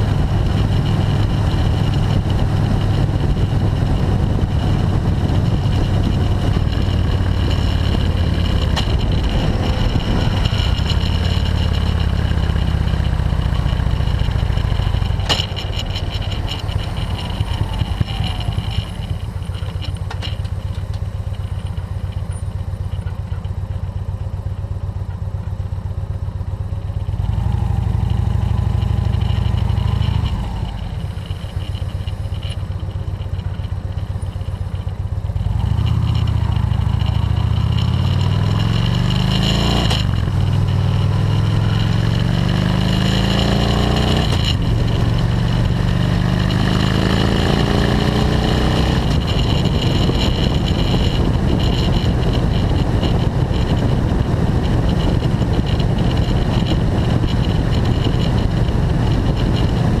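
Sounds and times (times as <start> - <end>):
wind rushing over microphone: 0.0 - 19.8, 35.4 - 60.0
motorcycle engine accelerating: 0.0 - 60.0.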